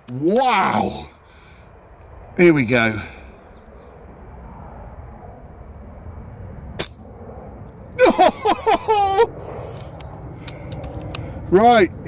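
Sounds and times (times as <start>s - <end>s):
wind noise: 1.0s - 12.0s
man crying out excitedly: 8.0s - 9.3s.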